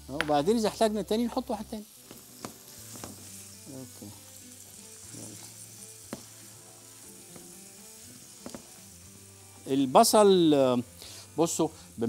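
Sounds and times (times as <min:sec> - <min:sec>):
food sizzling in a frying pan: 0:00.0 - 0:12.0
utensil stirring a pan: 0:01.3 - 0:10.4.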